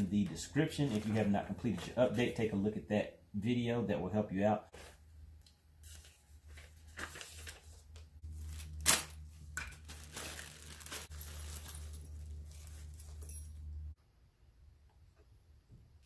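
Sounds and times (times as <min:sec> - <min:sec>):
paper and plastic rustling: 0:00.8 - 0:02.3, 0:05.8 - 0:13.2
steady low hum: 0:08.0 - 0:14.6
parts being set down: 0:08.3 - 0:13.7.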